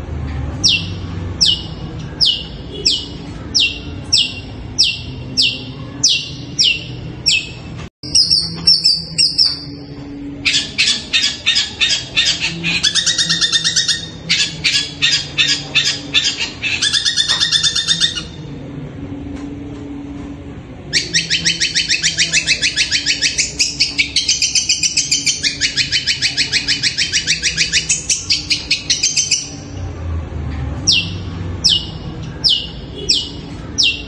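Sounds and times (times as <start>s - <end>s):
bird harsh chattering: 10.4s - 18.4s, 20.9s - 29.6s
shrike calling shrill notes: 20.9s - 29.7s.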